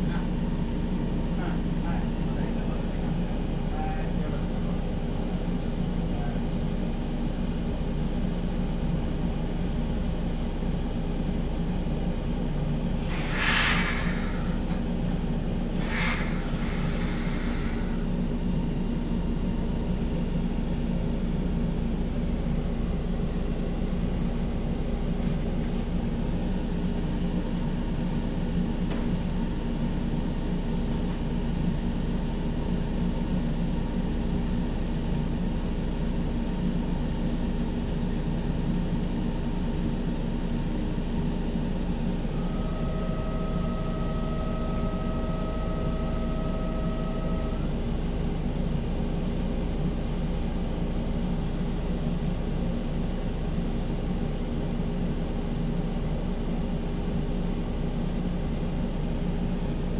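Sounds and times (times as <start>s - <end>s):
electric train equipment humming: 0.0s - 59.9s
short hisses: 13.0s - 14.6s, 15.7s - 18.0s.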